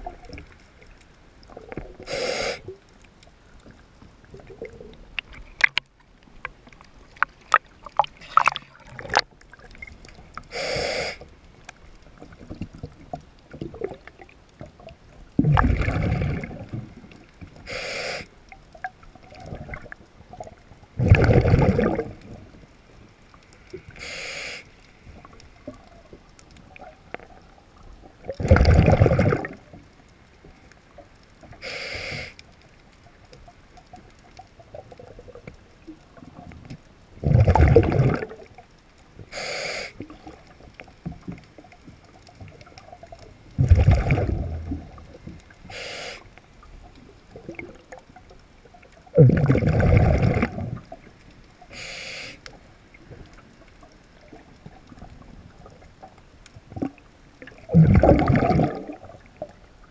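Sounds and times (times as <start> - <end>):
rumble of exhaled bubbles: 0.0 - 0.7, 1.4 - 2.1, 3.6 - 6.0, 6.7 - 10.4, 12.2 - 17.6, 18.7 - 22.7, 25.1 - 29.9, 34.0 - 38.6, 40.0 - 45.7, 46.6 - 51.3, 52.9 - 59.9
regulator inhale hiss: 2.0 - 2.8, 10.5 - 11.4, 17.6 - 18.4, 23.7 - 25.2, 31.6 - 32.4, 39.2 - 40.1, 45.6 - 46.4, 51.7 - 52.6.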